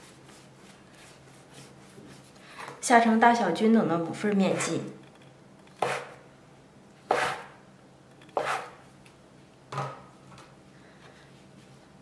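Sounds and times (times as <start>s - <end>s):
knife chopping on wooden board: 5.8s - 6.2s, 7.1s - 7.6s, 8.4s - 8.8s.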